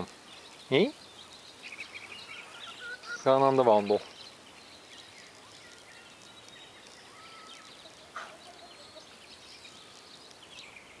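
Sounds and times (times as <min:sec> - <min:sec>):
faint high chirping: 0:00.0 - 0:11.0
hen call: 0:02.2 - 0:04.0
hens clucking: 0:02.4 - 0:03.7, 0:07.7 - 0:09.2.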